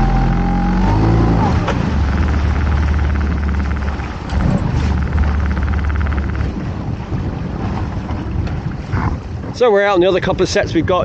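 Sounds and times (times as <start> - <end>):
boat engine humming: 0.0 - 9.4
sea water: 0.0 - 11.0
wind on microphone: 0.0 - 11.0
fast mechanical ticking: 1.9 - 6.6.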